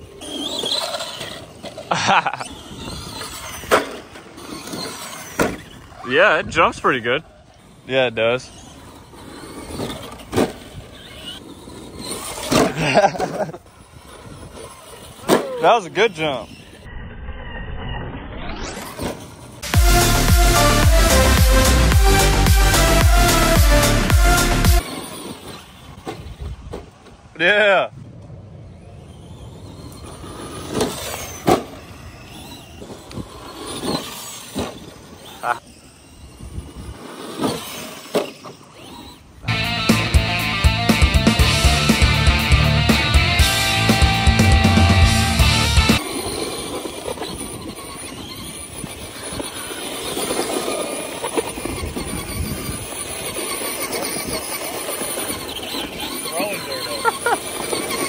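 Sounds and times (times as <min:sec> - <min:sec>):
electric motor and gear whine: 0:00.0 - 0:58.0
rc truck tyre noise: 0:00.0 - 0:58.0
high electric motor whine: 0:19.5 - 0:24.8, 0:39.2 - 0:58.0
rock music: 0:19.6 - 0:24.8, 0:39.5 - 0:46.0.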